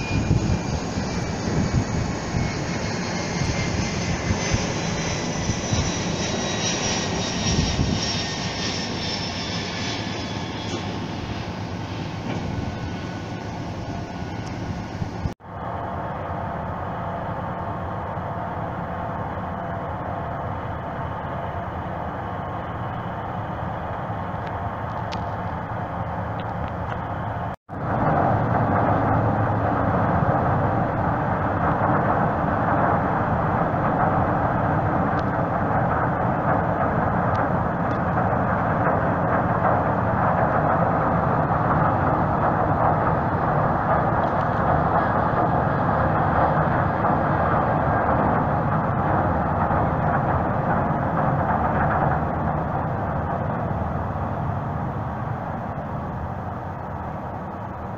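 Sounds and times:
ship engines and propellers: 0:00.0 - 0:57.9.

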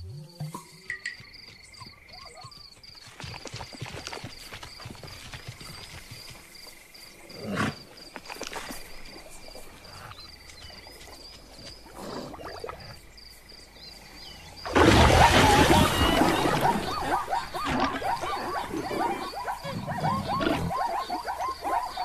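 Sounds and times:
splashing water: 0:14.7 - 0:19.3
animal roar: 0:14.7 - 0:22.0
animal cries: 0:15.0 - 0:22.0
soft animal sounds: 0:15.3 - 0:22.0.

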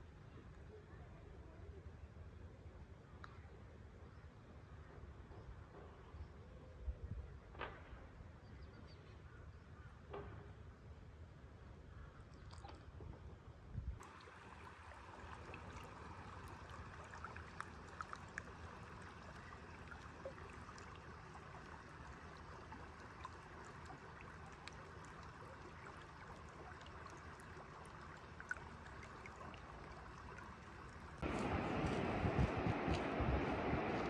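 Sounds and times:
stream rushing over stones: 0:14.0 - 0:34.0.

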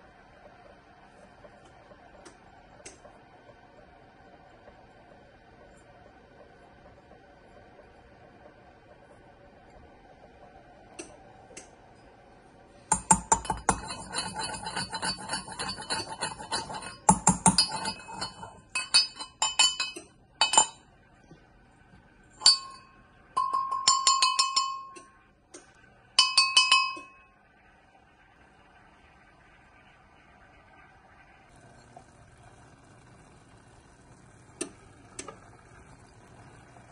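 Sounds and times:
mortar ringing: 0:12.9 - 0:20.8, 0:22.4 - 0:25.2, 0:26.2 - 0:27.4
pestle grinding in metal mortar: 0:13.0 - 0:20.7.

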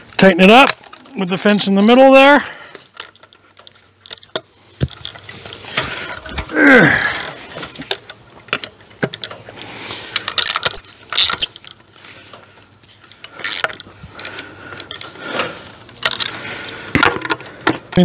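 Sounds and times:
ratchet wrench clicking: 0:13.4 - 0:13.8.

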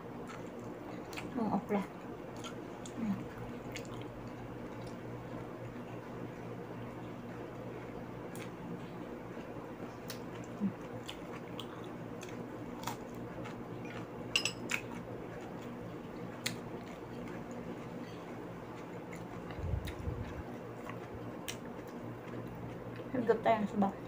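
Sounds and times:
steady low hum: 0:00.0 - 0:24.0
person chewing raw vegetables: 0:03.6 - 0:05.0, 0:10.0 - 0:23.1.

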